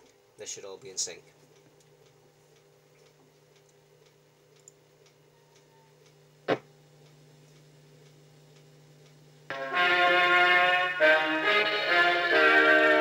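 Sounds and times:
sharp pop: 0:06.5 - 0:06.7.

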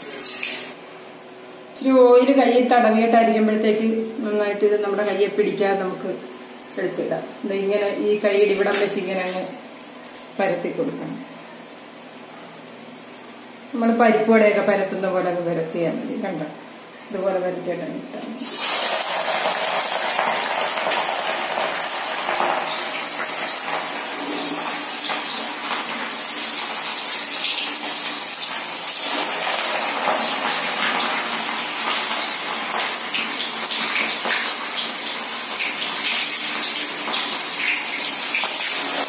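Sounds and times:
food deep-frying in sizzling oil: 0:18.4 - 0:39.0.

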